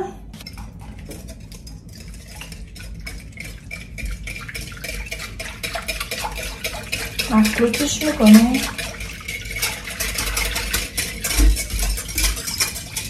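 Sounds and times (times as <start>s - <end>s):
whisk clicking against bowl: 1.1s - 13.0s.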